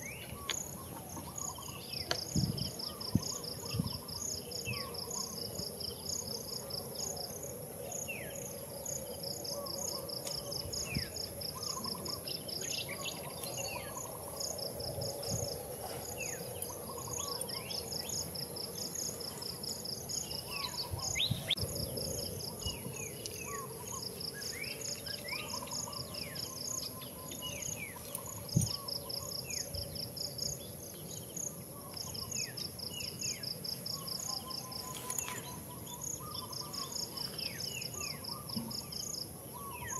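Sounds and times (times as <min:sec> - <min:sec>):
high insect whine: 0:00.0 - 0:39.9
insects chirping in pulses: 0:00.0 - 0:39.9
birds chirping: 0:15.2 - 0:39.9.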